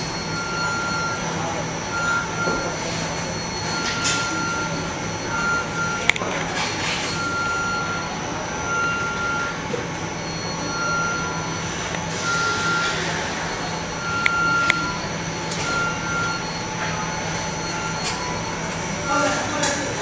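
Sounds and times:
machine hum and hiss: 0:00.0 - 0:20.0
short high electronic beeps: 0:10.3 - 0:19.4.

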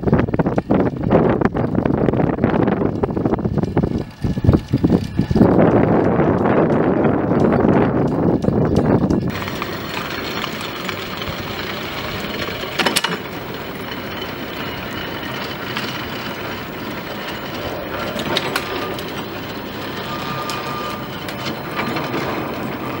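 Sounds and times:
buckets rolling along cables: 0:00.1 - 0:23.0
sharp clattering clicks: 0:00.4 - 0:23.0.

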